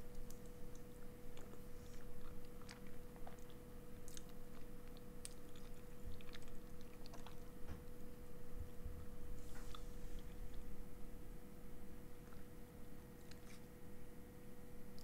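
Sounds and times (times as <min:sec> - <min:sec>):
faint steady hum: 0:00.0 - 0:15.0
person chewing food: 0:00.1 - 0:07.6, 0:12.1 - 0:13.8.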